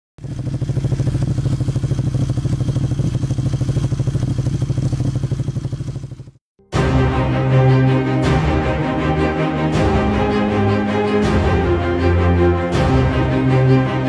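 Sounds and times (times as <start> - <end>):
motorcycle engine running: 0.2 - 6.4.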